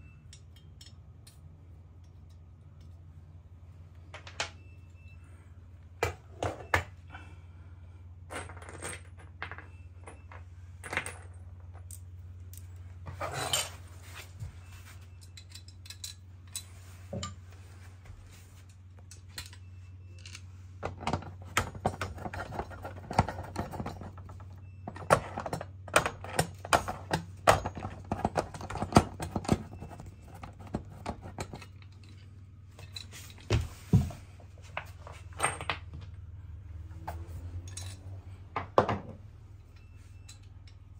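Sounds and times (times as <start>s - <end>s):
metal parts clinking: 0.0s - 3.0s, 15.0s - 17.4s, 18.7s - 33.5s, 37.5s - 38.2s, 39.6s - 40.9s.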